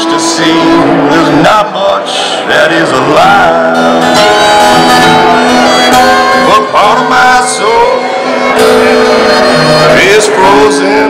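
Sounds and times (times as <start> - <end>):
acoustic guitar playing: 0.0 - 11.0
fiddle playing: 3.8 - 11.0.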